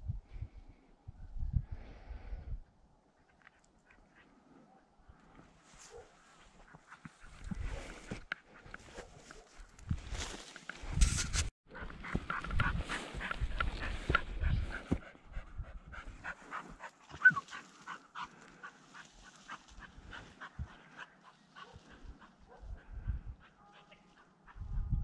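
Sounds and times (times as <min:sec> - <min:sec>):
footsteps crunching through dry grass: 0:05.6 - 0:15.1
vegetation rustling: 0:08.8 - 0:14.2
dog panting: 0:11.7 - 0:24.6.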